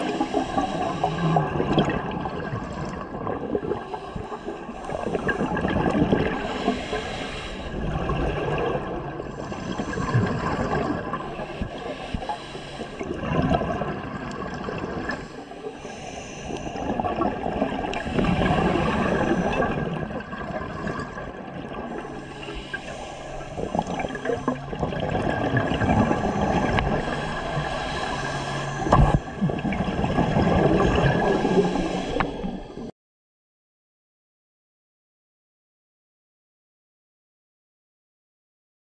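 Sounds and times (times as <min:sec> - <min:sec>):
diver breathing through regulator: 0:00.0 - 0:01.5, 0:03.6 - 0:08.0, 0:09.3 - 0:13.2, 0:15.1 - 0:17.0, 0:17.9 - 0:20.0, 0:21.8 - 0:32.9
gurgling exhaust bubbles: 0:00.0 - 0:04.3, 0:23.5 - 0:28.1, 0:28.8 - 0:32.3.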